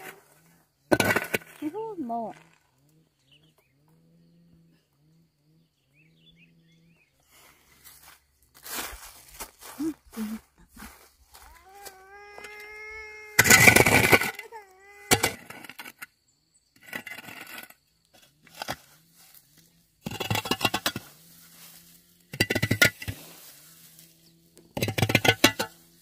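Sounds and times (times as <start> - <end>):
high drawn-out cry: 11.3 - 15.7.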